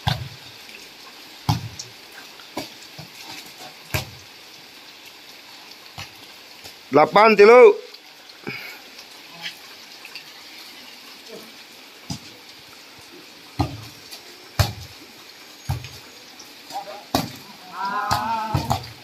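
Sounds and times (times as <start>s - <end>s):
heavy rain on concrete: 0.0s - 19.0s
volleyball slapped by hands: 1.5s - 1.9s, 13.6s - 14.0s, 14.6s - 15.0s, 18.1s - 19.0s.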